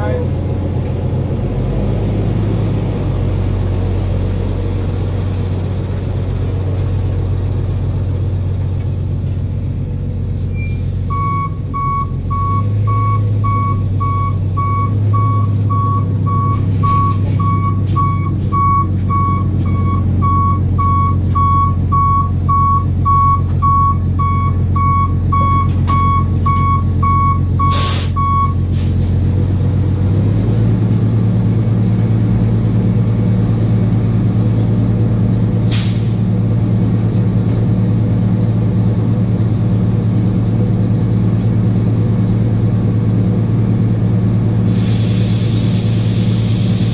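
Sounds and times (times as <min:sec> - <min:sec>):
truck engine running: 0:00.0 - 0:46.9
reversing alarm beeping: 0:10.5 - 0:28.6
air brake hiss: 0:27.7 - 0:29.1, 0:35.6 - 0:36.2, 0:44.6 - 0:46.9.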